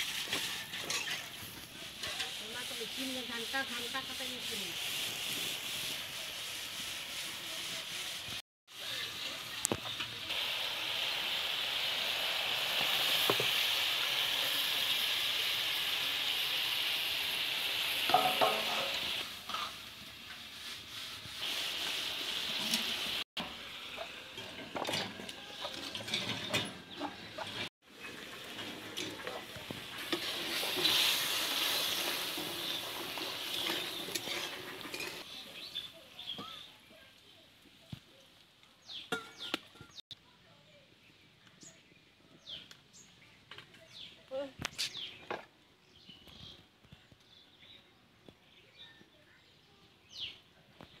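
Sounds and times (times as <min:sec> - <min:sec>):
tomatoes sizzling in oil: 0:00.0 - 0:26.2, 0:26.8 - 0:36.8
metal spatula scraping pan: 0:18.1 - 0:20.6, 0:30.0 - 0:35.3.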